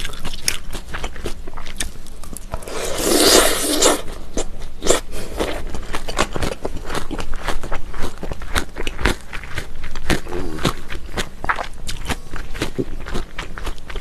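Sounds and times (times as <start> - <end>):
crisp chewing crunches: 0.0 - 14.0
slurping noodles: 2.6 - 4.2.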